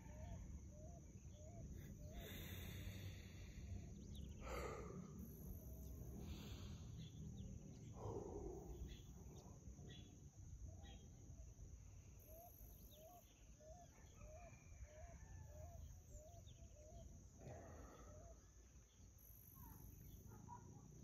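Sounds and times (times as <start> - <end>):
soft breath: 1.8 - 7.2, 17.4 - 18.9.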